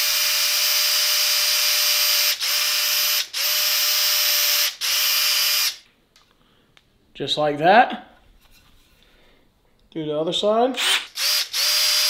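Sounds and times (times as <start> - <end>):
power drill motor whining: 0.0 - 5.8, 10.8 - 12.0.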